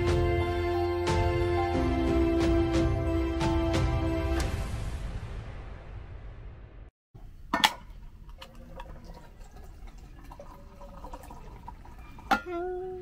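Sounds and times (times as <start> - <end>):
liquid trickling: 7.8 - 13.0.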